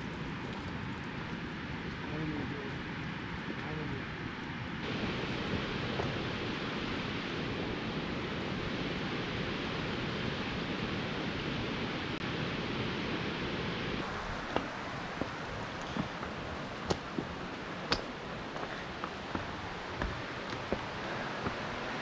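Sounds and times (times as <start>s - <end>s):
waterfall rushing: 14.0s - 22.0s.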